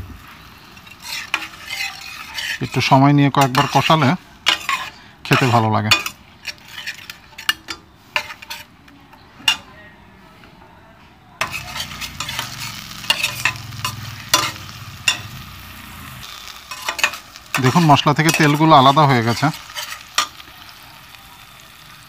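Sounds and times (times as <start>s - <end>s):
spice paste sizzling in oil: 0.0s - 8.8s, 11.4s - 22.0s
metal spatula scraping a pot: 0.6s - 8.8s, 9.4s - 9.7s, 11.4s - 20.4s.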